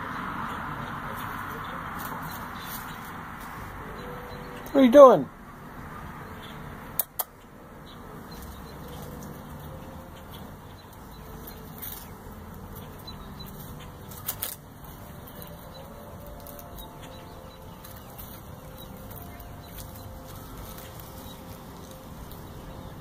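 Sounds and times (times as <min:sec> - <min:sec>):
outdoor background noise: 0:00.0 - 0:23.0
sharp clicks: 0:07.0 - 0:07.5.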